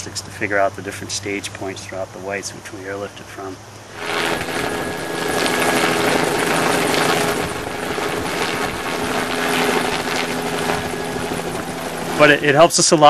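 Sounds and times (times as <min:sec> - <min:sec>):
helicopter rotor beating: 0:03.9 - 0:13.0.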